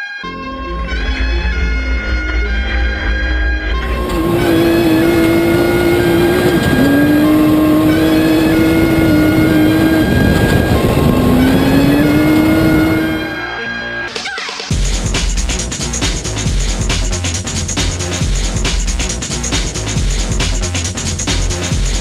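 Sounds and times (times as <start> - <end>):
dirt and tyre noise: 0.5 - 14.1
race car engine at high revs: 3.8 - 13.4.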